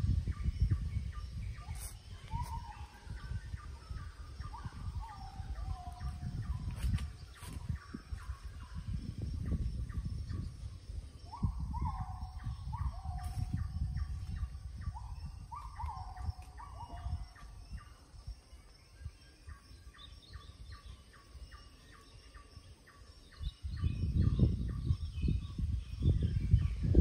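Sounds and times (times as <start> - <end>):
wild birds calling: 0.0 - 8.9, 9.5 - 26.0.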